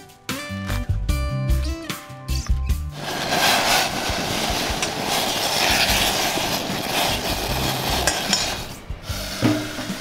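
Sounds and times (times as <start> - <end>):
gas burner and boiling water hissing: 2.9 - 10.0
stirring in pot: 3.0 - 8.9.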